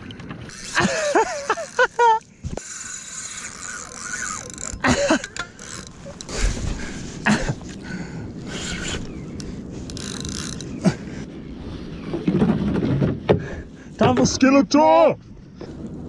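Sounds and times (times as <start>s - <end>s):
fishing reel gears whirring: 0.5s - 7.0s, 8.5s - 10.8s.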